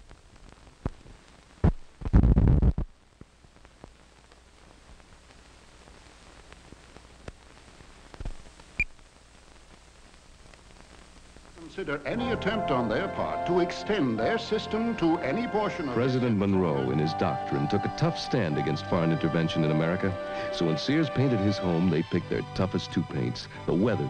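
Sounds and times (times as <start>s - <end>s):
faint film hiss: 0.0s - 24.0s.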